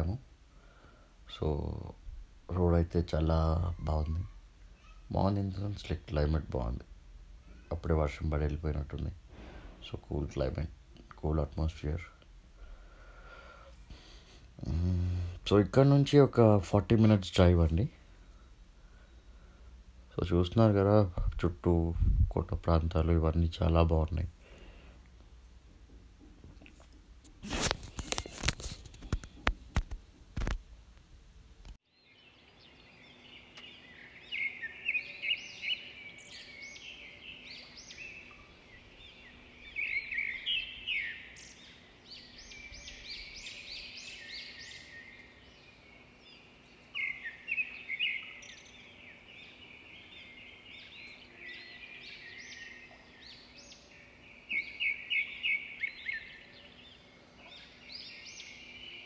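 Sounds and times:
birds chirping and chattering: 0.0s - 6.8s, 7.5s - 18.0s, 31.9s - 59.0s.

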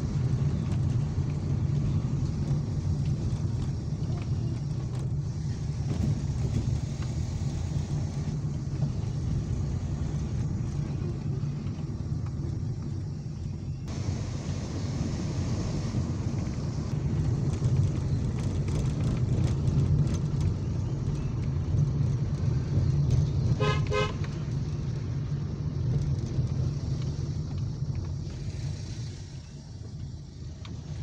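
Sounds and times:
car engine and tyres rumbling: 0.0s - 31.0s
car horn toot: 23.5s - 24.4s.

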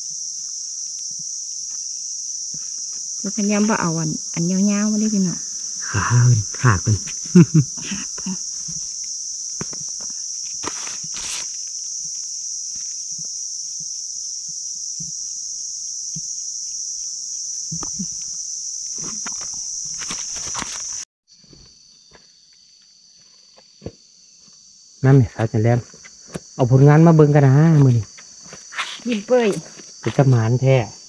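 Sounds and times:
forest insects droning: 0.0s - 31.0s
footsteps on leaf litter: 9.6s - 11.7s, 20.0s - 21.0s, 28.4s - 30.3s.

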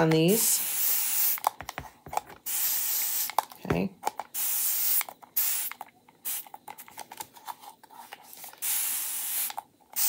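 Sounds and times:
spray bottle hissing: 0.4s - 1.4s, 2.4s - 3.4s, 4.3s - 6.6s, 8.6s - 10.0s.

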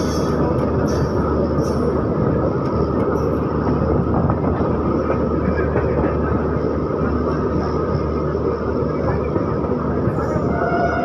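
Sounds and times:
train wheels rumbling on rail: 0.0s - 11.0s.

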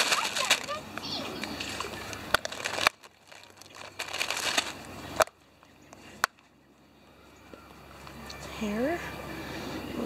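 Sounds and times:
plastic packet crinkling: 0.0s - 0.8s, 1.6s - 5.3s.

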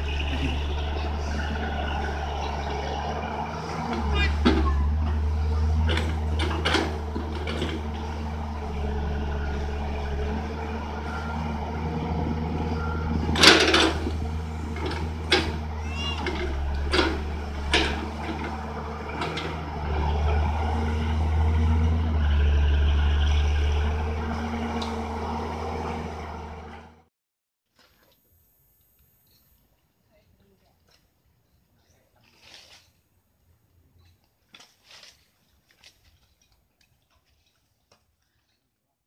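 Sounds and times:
excavator diesel engine running: 0.0s - 27.1s.

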